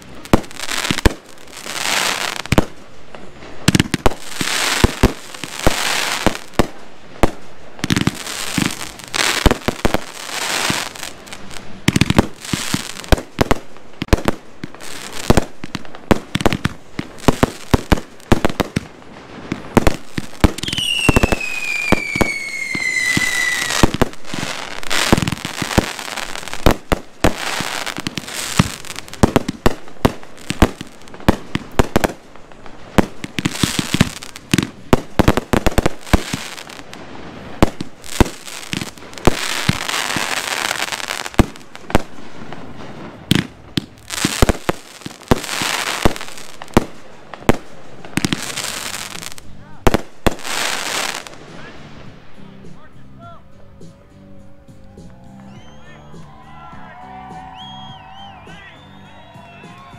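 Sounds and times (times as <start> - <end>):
fireworks bursting: 0.0 - 59.9
fireworks crackling: 0.0 - 59.9
falling firework whistle: 20.5 - 28.7, 55.0 - 59.9.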